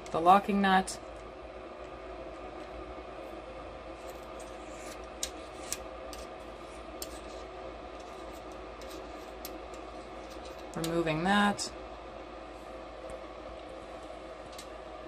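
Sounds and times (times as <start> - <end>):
steady hum: 0.0 - 15.0
light metal scraping: 4.0 - 11.0.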